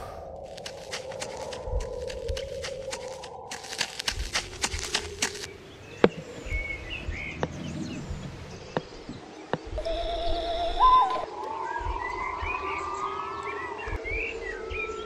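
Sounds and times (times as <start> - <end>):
birds chirping: 0.0 - 15.0
footsteps crunching through dry leaves: 0.4 - 5.5
sharp snaps: 0.4 - 6.2.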